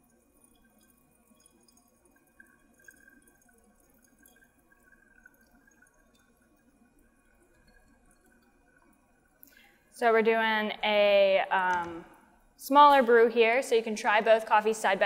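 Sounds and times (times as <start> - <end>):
water trickling onto coffee grounds: 0.0 - 10.4.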